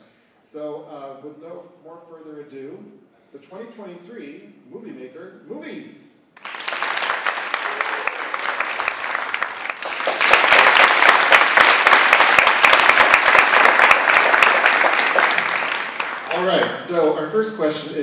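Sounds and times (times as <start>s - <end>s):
audience applauding: 6.4s - 16.9s.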